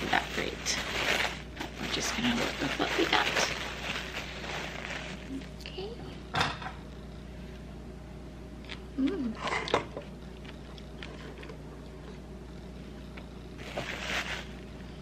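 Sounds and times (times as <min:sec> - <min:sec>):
knocks and plastic wrap rustling: 0:00.0 - 0:05.3, 0:13.6 - 0:14.6.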